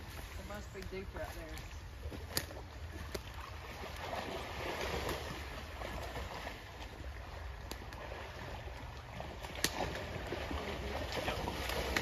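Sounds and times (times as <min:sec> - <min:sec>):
river water rushing: 0:02.4 - 0:12.0.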